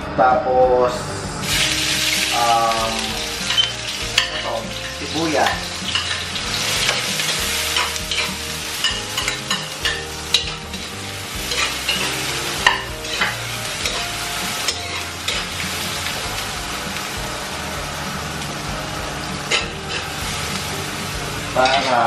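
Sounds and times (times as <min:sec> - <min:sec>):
onion sizzling in oil: 0:01.4 - 0:22.0
metal ladle scraping pot: 0:11.5 - 0:14.1.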